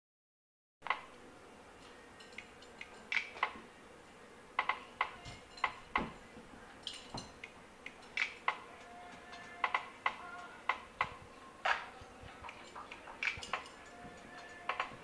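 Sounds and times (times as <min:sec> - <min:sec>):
sharp metallic clinks: 0:02.2 - 0:03.2, 0:05.2 - 0:10.6, 0:12.4 - 0:15.0.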